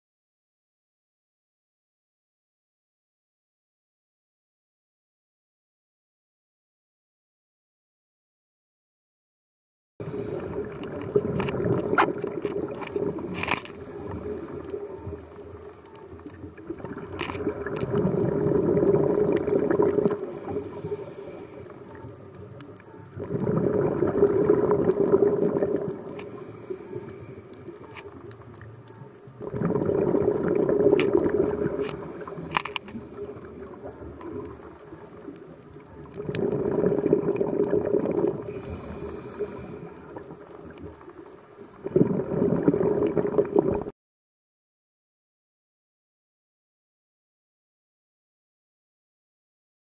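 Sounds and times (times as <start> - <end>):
underwater exhaust bubbles: 10.0 - 43.9
diver breathing: 12.9 - 15.6, 20.2 - 21.9, 25.6 - 27.8, 38.2 - 40.2.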